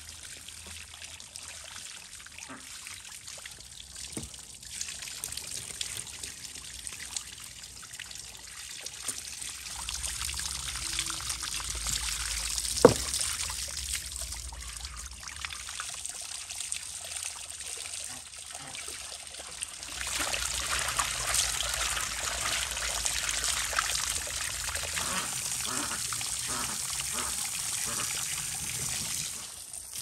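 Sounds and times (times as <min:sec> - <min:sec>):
hose water splashing: 0:03.4 - 0:30.0
sharp knock: 0:12.8 - 0:13.2.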